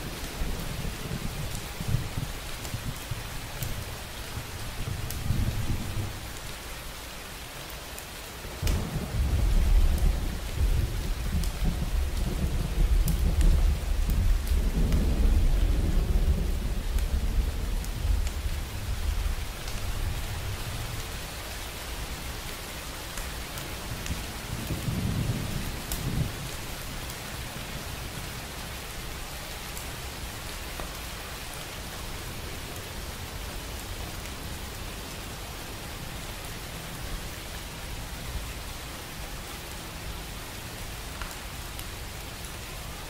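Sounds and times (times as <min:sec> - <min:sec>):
rain drops ticking: 0:00.0 - 0:43.0
steady rain: 0:00.0 - 0:43.0
thunder rumbling: 0:08.6 - 0:20.9.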